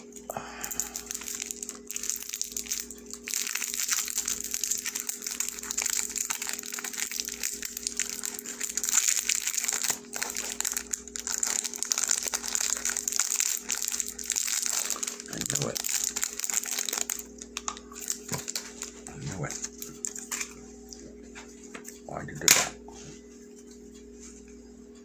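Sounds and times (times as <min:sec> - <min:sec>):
faint steady hum: 0:00.0 - 0:25.0
dense crackling and crinkling: 0:00.6 - 0:20.6.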